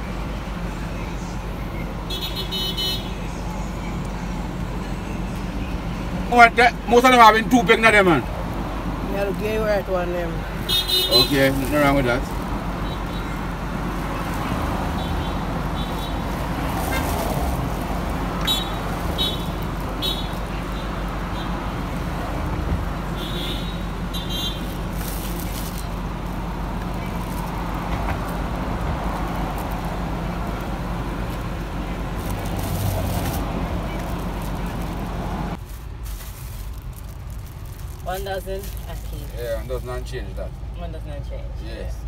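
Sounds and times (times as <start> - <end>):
roadside traffic: 0.0 - 42.0
plastic bag crinkling: 15.9 - 20.5, 24.6 - 39.6.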